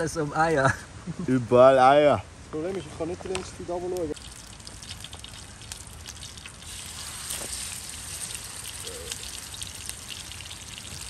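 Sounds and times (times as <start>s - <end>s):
crackles and pops: 3.3s - 11.0s
meat sizzling in a pan: 4.3s - 11.0s.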